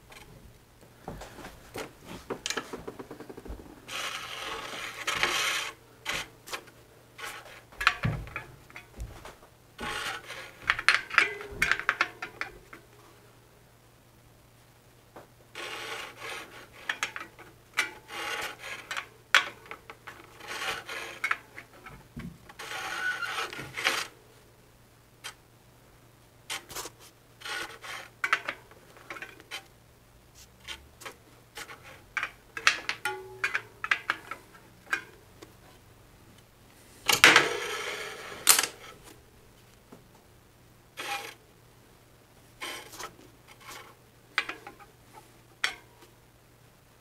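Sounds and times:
loud scrape: 3.9s - 6.3s.

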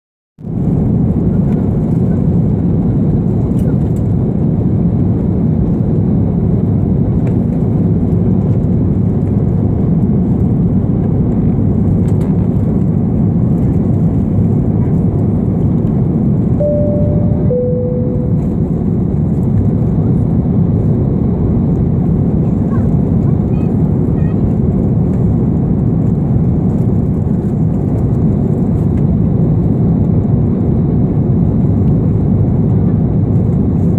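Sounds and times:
airliner cabin noise: 0.6s - 33.9s
two-note cabin chime: 16.6s - 18.8s.

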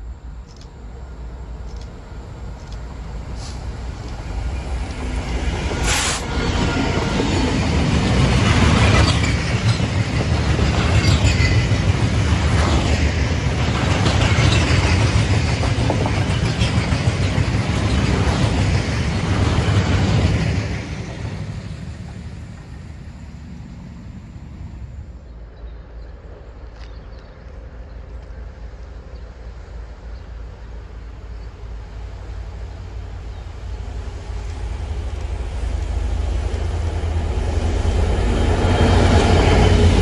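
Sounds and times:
freight train rumbling past: 0.0s - 40.0s
train wheels clacking over joints: 6.8s - 21.4s.

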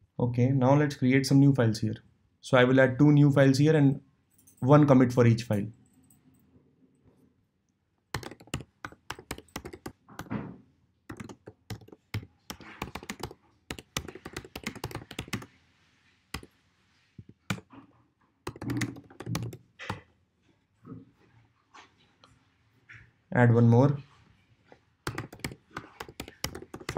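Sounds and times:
typing on computer keyboard: 8.1s - 10.4s, 11.1s - 15.5s, 17.2s - 17.8s, 18.4s - 20.1s, 25.0s - 26.9s.

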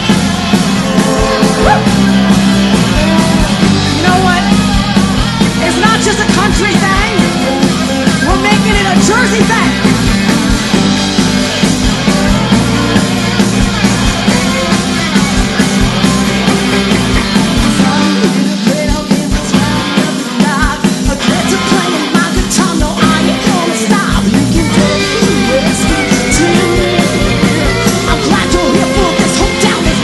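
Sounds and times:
fiddle: 0.0s - 18.2s
country-rock band playing: 0.0s - 30.0s.

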